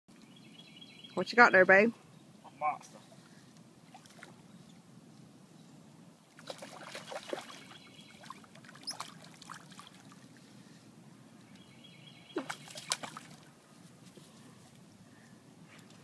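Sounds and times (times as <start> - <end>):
fish splashing at water surface: 6.4 - 10.2, 12.4 - 13.5.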